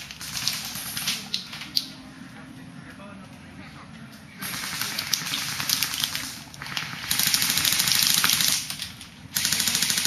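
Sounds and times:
airsoft guns full-auto firing: 0.0s - 1.3s, 4.4s - 10.0s.

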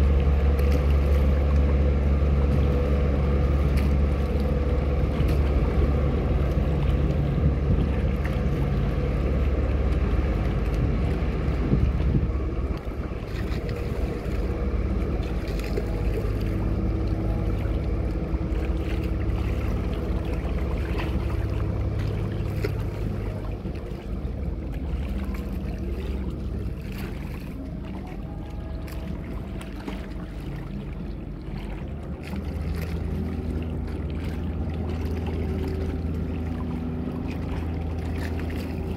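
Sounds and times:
boat engines droning: 0.0s - 38.9s
water noise: 0.0s - 38.9s
wind: 0.0s - 38.9s.

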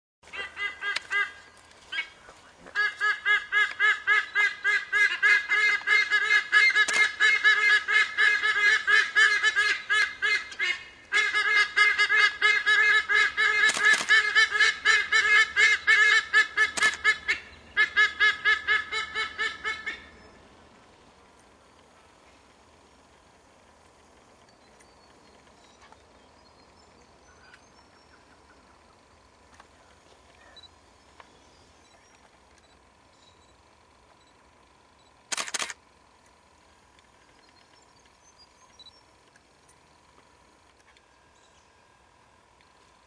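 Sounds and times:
sea eagles honking: 0.2s - 20.2s.

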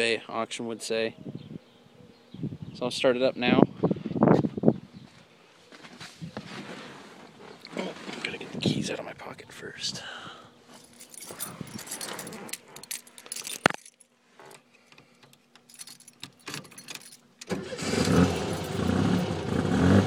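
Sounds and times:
keys jangling: 10.8s - 17.5s, 18.2s - 19.3s
car engine starting and running: 16.8s - 20.0s.

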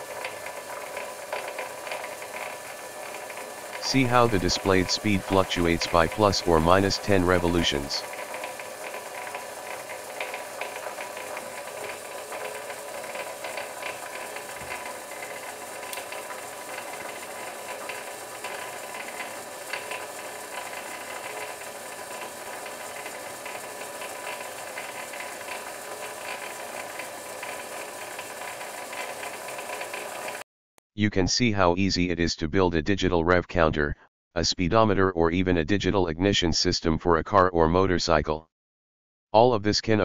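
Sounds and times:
lathe motor and gears whirring: 0.0s - 6.3s, 7.1s - 30.4s.

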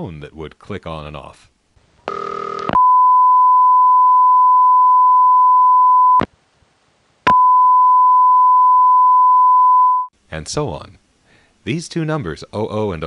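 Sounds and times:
phone line click: 2.1s - 3.0s, 7.3s - 7.7s
telephone test tone: 2.1s - 6.3s, 7.3s - 10.1s.

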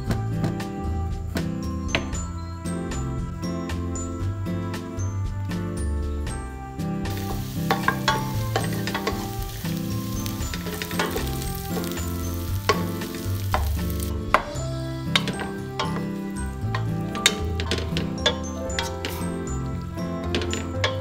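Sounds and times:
soft background music: 0.0s - 21.0s
garlic sizzling in hot oil: 7.1s - 21.0s.

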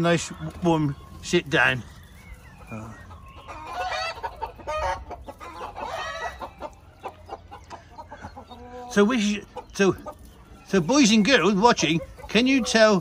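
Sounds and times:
hen cackling: 2.3s - 13.0s.

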